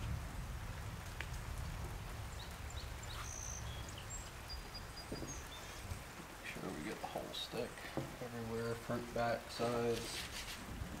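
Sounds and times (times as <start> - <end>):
high bird chirps: 2.4 - 5.9.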